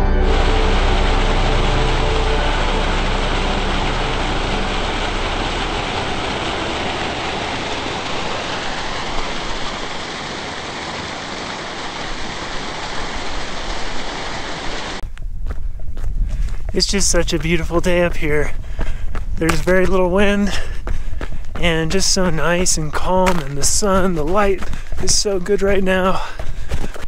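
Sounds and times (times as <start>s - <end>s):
water rushing over a spillway: 0.3s - 15.0s.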